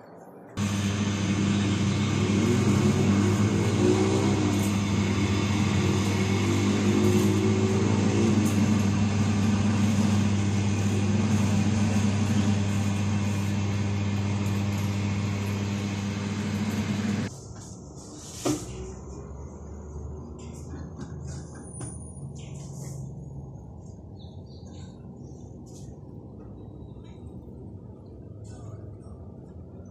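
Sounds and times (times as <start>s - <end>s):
machine hum: 0.6s - 17.3s.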